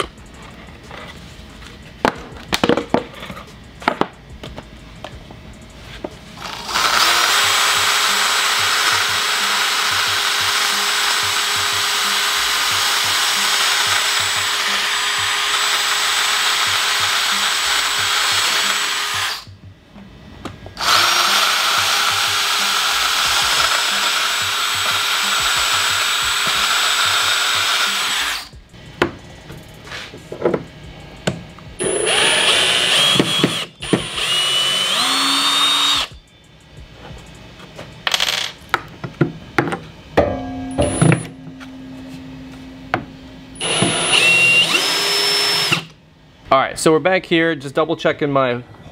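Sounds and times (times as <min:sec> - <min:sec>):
cordless drill boring through wood: 0:06.4 - 0:19.5, 0:20.8 - 0:28.5, 0:31.8 - 0:36.1, 0:43.6 - 0:45.9.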